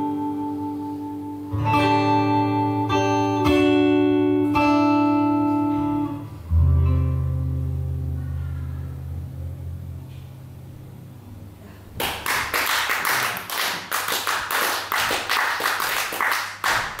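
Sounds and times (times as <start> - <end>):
audience applauding: 12.0 - 17.0.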